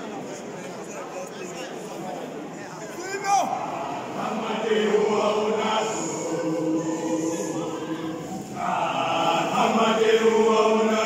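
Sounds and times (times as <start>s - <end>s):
male choir singing in harmony: 3.5s - 11.0s.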